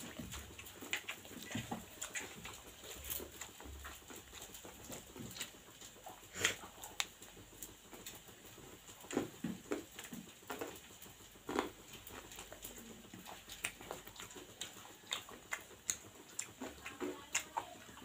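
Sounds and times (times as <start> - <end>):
wet chewing and lip smacking: 0.0 - 18.0
fingers squishing rice on plate: 11.5 - 18.0.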